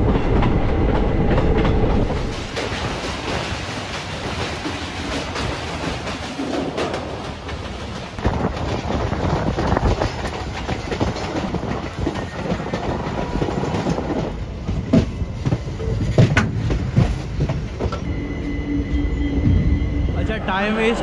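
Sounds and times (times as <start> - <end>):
train wheels clacking over rail joints: 0.0 - 18.1
train rumbling: 0.0 - 21.0
high-pitched wheel squeal: 18.0 - 21.0.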